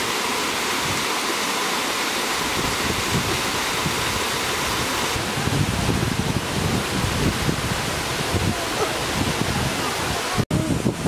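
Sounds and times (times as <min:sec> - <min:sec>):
waterfall splashing over rocks: 0:00.0 - 0:11.0
wind buffeting microphone: 0:02.4 - 0:11.0.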